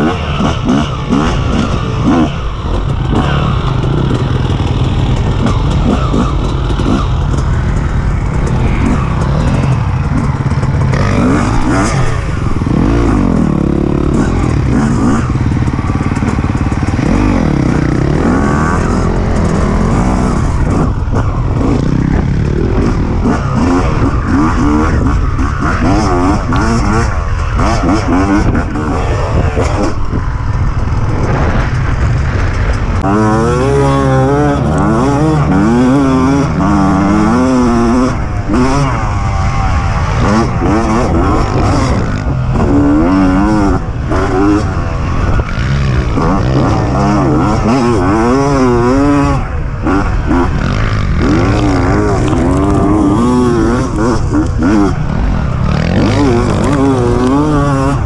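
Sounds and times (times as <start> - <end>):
dirt bike engines revving: 0.0 - 58.0.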